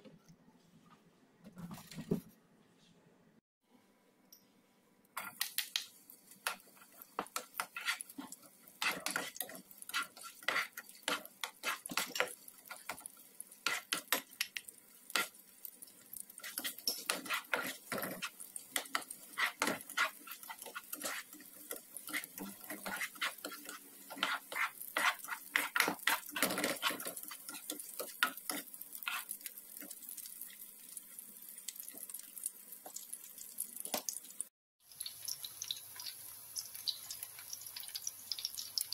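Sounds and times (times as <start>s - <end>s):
light sizzle: 4.3s - 38.9s
spatula scraping frying pan: 6.4s - 14.3s, 16.3s - 30.0s.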